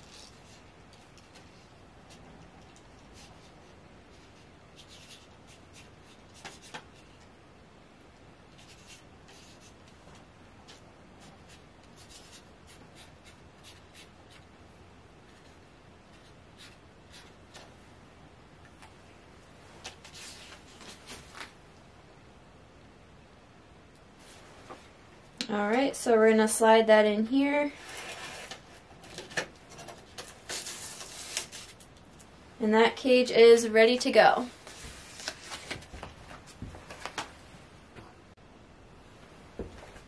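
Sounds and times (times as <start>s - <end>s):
marker pen scratching on paper: 3.0s - 7.3s, 8.5s - 10.0s, 10.6s - 14.5s, 15.3s - 17.7s.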